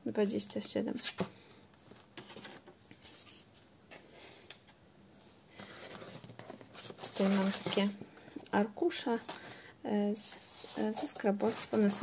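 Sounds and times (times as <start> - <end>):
paper rustling: 5.6 - 8.0.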